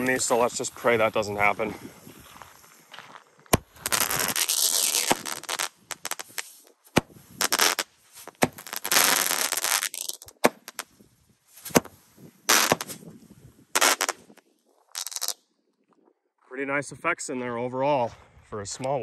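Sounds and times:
firework cracks: 3.5s - 11.0s, 11.6s - 13.1s, 13.7s - 15.4s
firework hissing: 3.6s - 10.8s, 12.5s - 13.0s, 13.8s - 14.3s, 14.9s - 15.4s.

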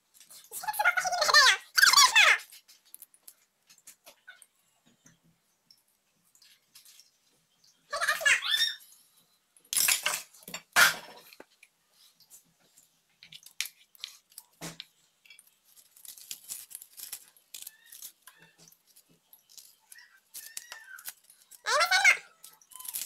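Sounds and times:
kitchen items clattering: 9.7s - 11.6s.

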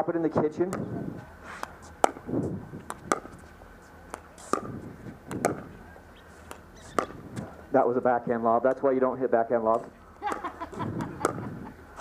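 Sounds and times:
paddles hitting plastic ball: 1.6s - 2.3s, 2.9s - 3.4s, 4.1s - 5.7s, 6.4s - 7.5s, 9.7s - 11.6s.

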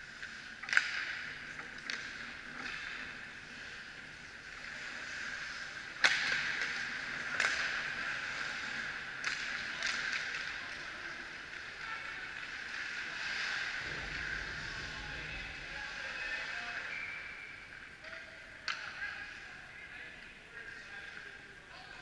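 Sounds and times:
hockey sticks and puck clacking: 0.0s - 19.4s, 20.2s - 22.0s.

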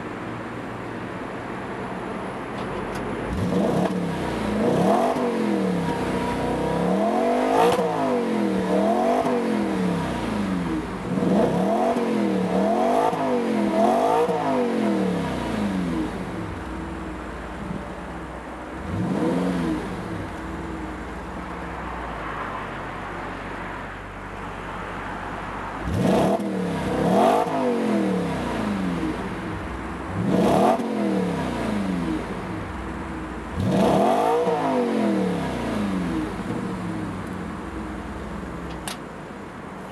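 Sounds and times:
car exhaust revving: 3.3s - 21.5s, 25.8s - 38.7s.

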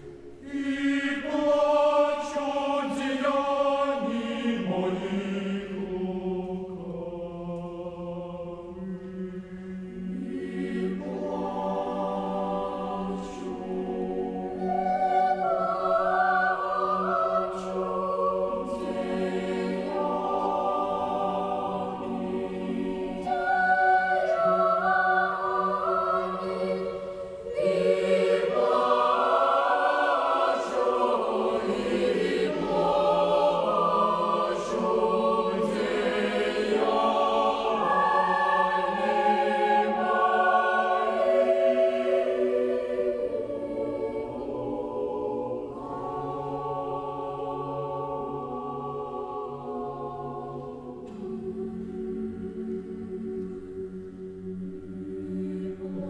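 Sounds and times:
choir singing slowly: 0.0s - 56.0s.

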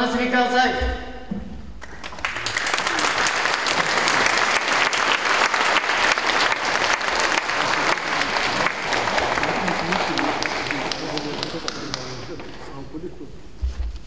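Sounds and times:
audience applauding: 1.8s - 12.7s.

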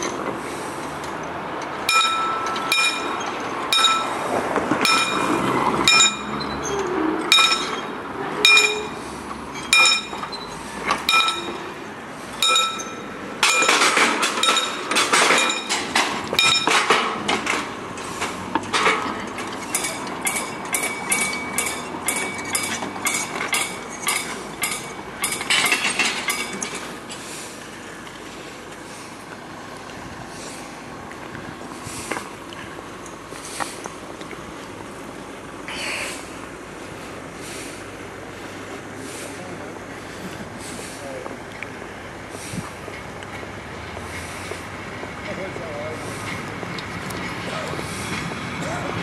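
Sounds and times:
level crossing warning bell: 1.0s - 17.7s, 18.8s - 27.2s.

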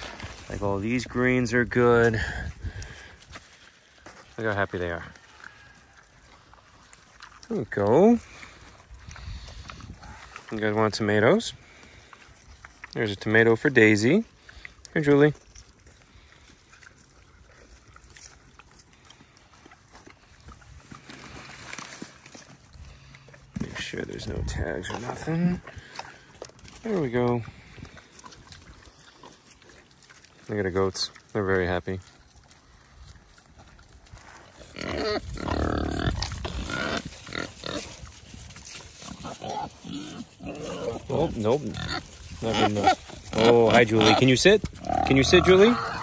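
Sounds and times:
pigs crunching and chomping food: 0.0s - 46.0s.

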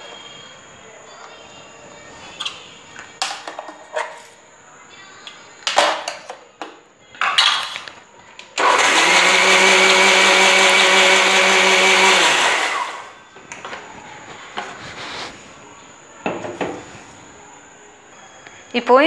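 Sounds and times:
mixer grinder running: 8.6s - 13.2s.

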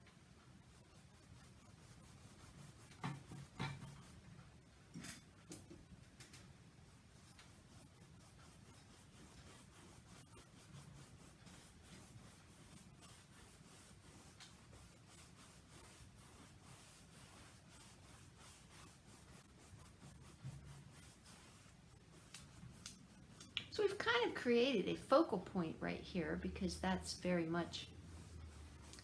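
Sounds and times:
paintbrush scratching on canvas: 0.6s - 4.2s, 6.8s - 29.0s.

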